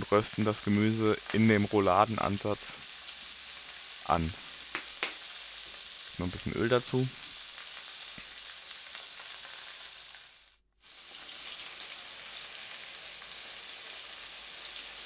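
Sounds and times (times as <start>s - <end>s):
vegetables sizzling in oil: 0.0s - 15.0s.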